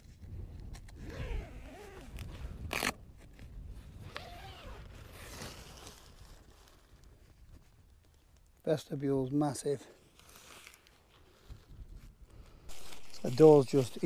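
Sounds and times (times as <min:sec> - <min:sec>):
tent zip being pulled: 0:00.8 - 0:03.0, 0:03.9 - 0:06.3, 0:12.7 - 0:14.0.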